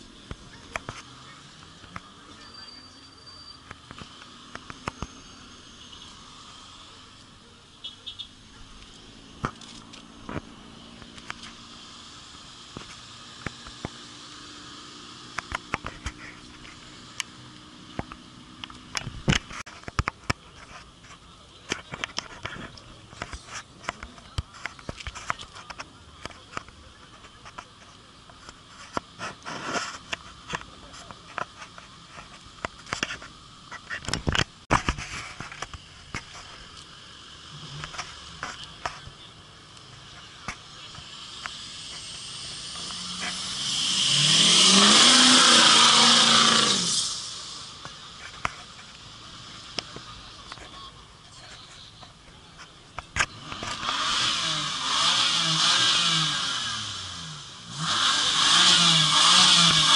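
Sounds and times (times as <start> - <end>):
vehicle engine accelerating: 35.3 - 50.6, 53.0 - 59.9
loud rushing hiss: 41.0 - 47.8.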